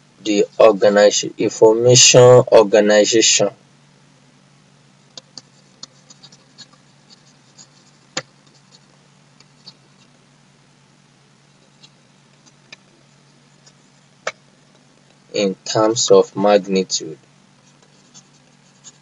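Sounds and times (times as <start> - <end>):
faint low hum: 0.0 - 19.0
stylus tapping on tablet: 8.1 - 8.8.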